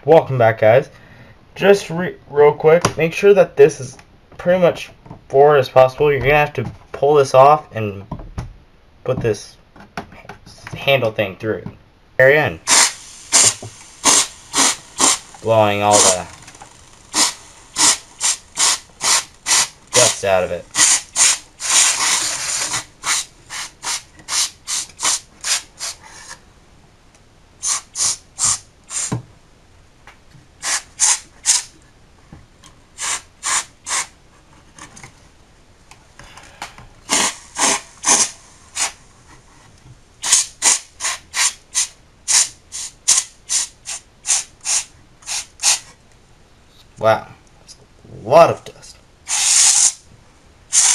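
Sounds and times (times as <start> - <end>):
compressed air hissing bursts: 12.7 - 26.4, 27.6 - 29.2, 30.6 - 31.8, 33.0 - 34.1, 37.0 - 39.0, 40.2 - 45.9, 49.3 - 50.0.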